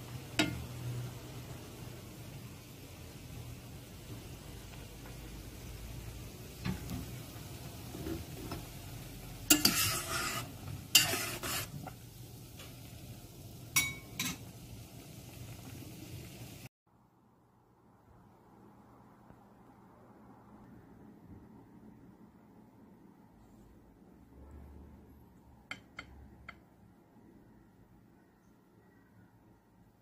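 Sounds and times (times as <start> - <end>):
soup bubbling in pot: 0.1 - 16.7
metal spoon scraping pot: 9.5 - 11.9.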